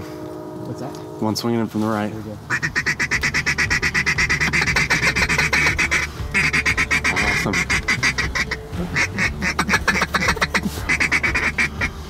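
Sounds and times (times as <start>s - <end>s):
duck call quacks: 2.5s - 12.0s.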